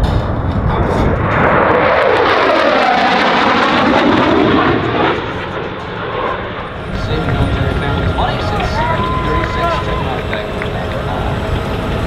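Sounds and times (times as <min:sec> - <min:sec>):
military airplane flying past: 0:00.0 - 0:12.0.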